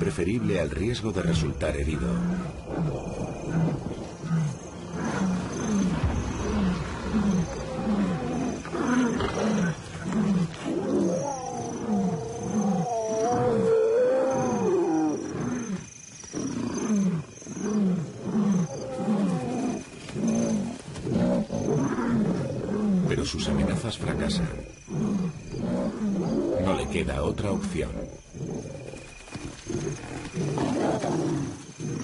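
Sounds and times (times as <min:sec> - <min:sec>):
lions roaring: 0:01.6 - 0:27.0, 0:27.6 - 0:32.0.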